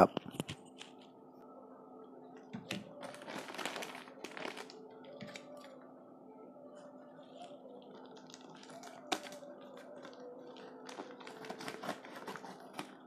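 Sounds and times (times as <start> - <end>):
plastic mailer crinkling: 2.6 - 5.5, 7.4 - 13.0.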